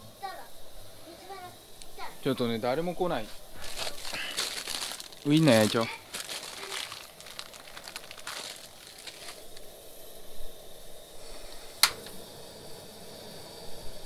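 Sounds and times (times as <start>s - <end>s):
plastic packaging crinkling: 3.5s - 9.7s.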